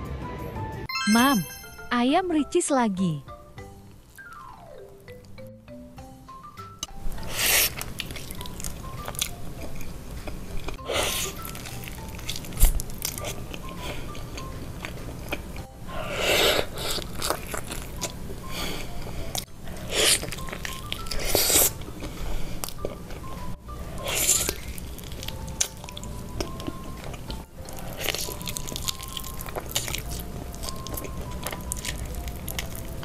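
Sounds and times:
person chewing fried chicken: 0:07.2 - 0:33.0.

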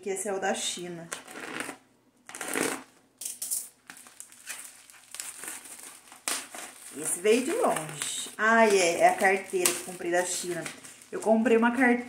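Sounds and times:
packaging rustling: 0:03.7 - 0:12.0.

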